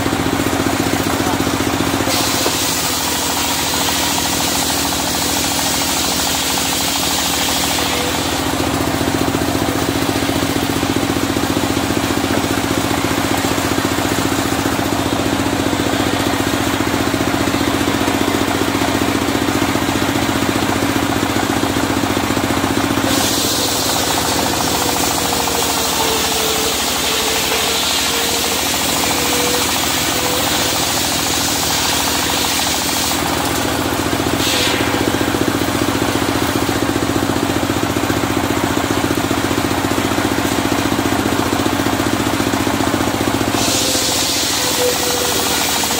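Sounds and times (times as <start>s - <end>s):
sawmill engine running: 0.0s - 45.9s
saw blade hissing through log: 1.9s - 8.7s, 23.0s - 36.7s, 43.5s - 45.9s.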